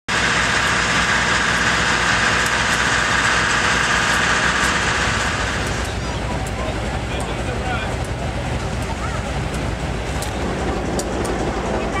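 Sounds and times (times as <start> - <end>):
diesel locomotive idling hum: 0.1 - 12.0.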